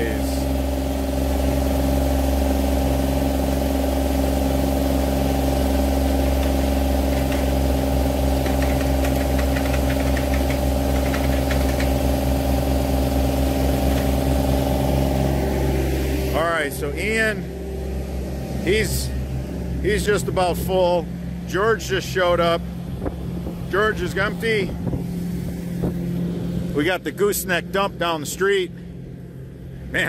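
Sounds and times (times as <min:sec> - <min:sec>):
digging machine engine running: 0:00.0 - 0:21.9.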